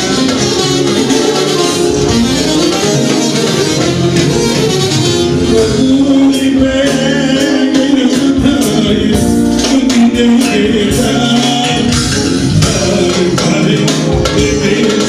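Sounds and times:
live band dance music: 0.0s - 15.0s
steady percussion beat: 0.0s - 15.0s
man singing into a microphone: 5.4s - 15.0s.

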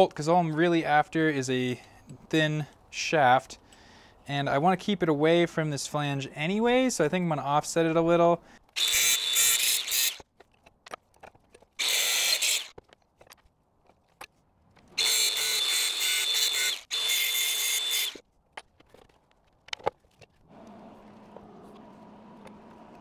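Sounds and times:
angle grinder cutting bolt: 8.7s - 10.3s, 11.8s - 12.8s, 15.0s - 18.2s.

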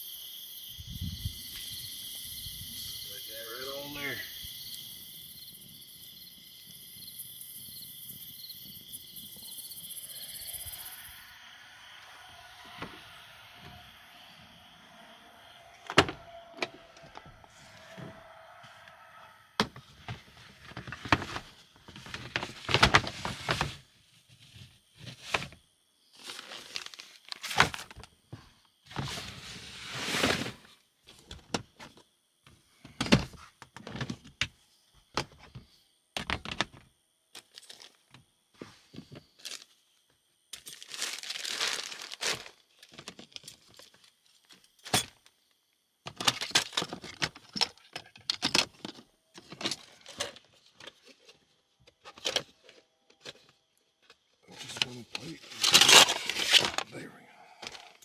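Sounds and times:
rustling of packed items: 19.6s - 31.6s, 37.4s - 39.8s, 40.5s - 45.2s, 46.1s - 58.0s.

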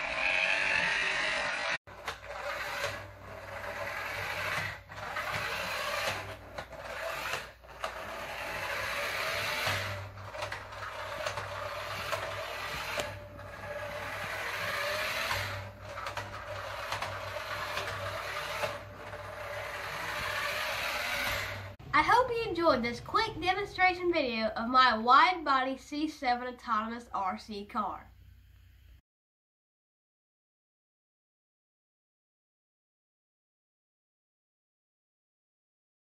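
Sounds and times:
toy car motor whirring: 0.0s - 21.8s.

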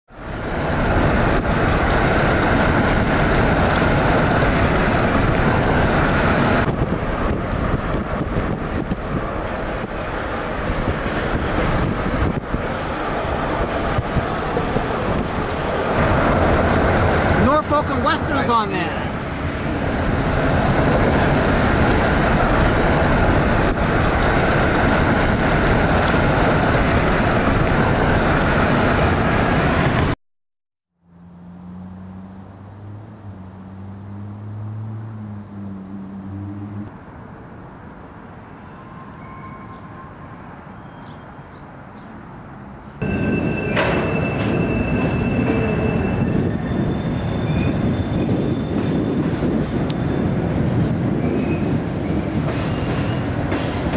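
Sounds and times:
vehicle rolling rumble: 0.1s - 30.2s, 31.0s - 38.1s.

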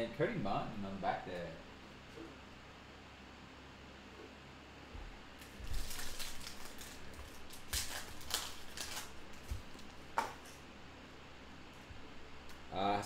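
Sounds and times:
foil wrapper crinkling and tearing: 5.4s - 10.5s.

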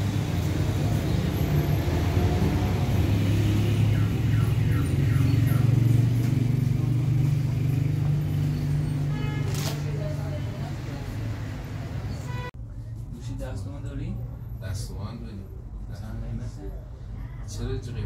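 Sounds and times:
shopping mall background drone: 0.0s - 13.0s.

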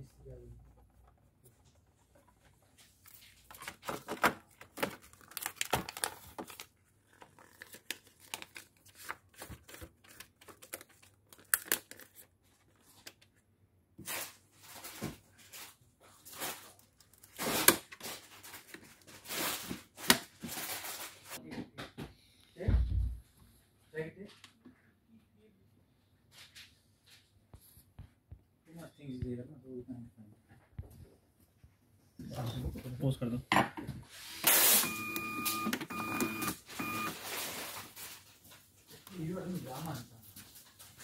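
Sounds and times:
paper rustling and crinkling: 1.5s - 13.4s, 14.0s - 21.4s, 37.1s - 41.0s.

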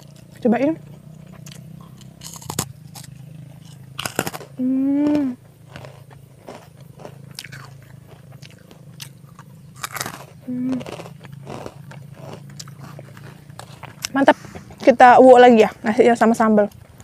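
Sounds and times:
crackers crunching while chewed: 0.0s - 15.0s
person humming mmm: 4.6s - 5.4s, 10.4s - 11.1s.

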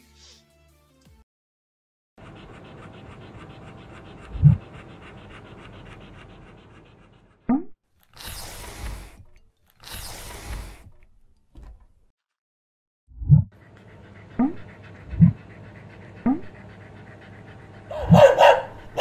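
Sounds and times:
dog panting: 2.2s - 11.0s, 13.6s - 19.0s.

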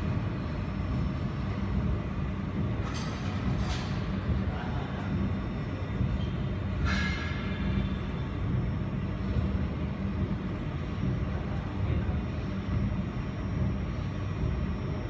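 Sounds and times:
cooling fans humming: 0.0s - 15.0s.

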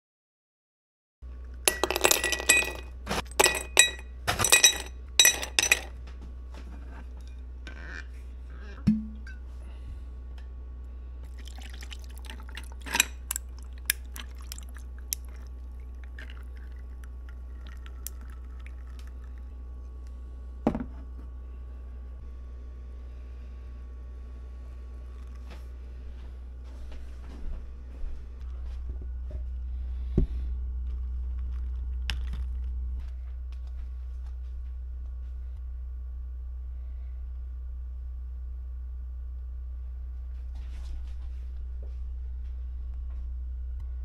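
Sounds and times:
steady low hum: 1.3s - 44.0s
ice cubes clinking into glass: 1.7s - 5.9s, 11.4s - 13.6s
liquid poured over ice: 11.3s - 19.4s.

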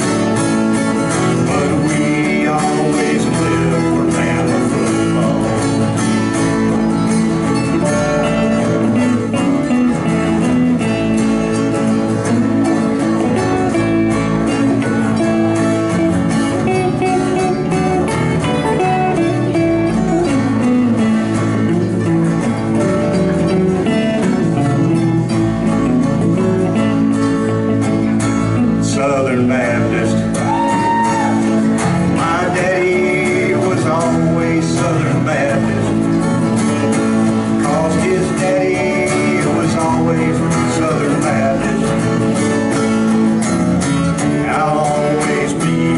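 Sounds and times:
electric guitars: 0.0s - 45.9s
strummed acoustic guitar: 0.0s - 45.9s
man singing through a pa: 1.2s - 6.1s, 28.7s - 31.4s, 32.0s - 36.2s, 37.5s - 42.2s, 44.2s - 45.9s.

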